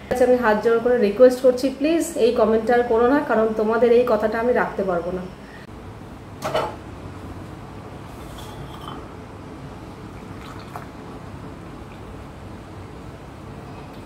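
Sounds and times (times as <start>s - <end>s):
glass clink: 8.4s - 9.1s
tea pouring through strainer: 10.1s - 11.0s.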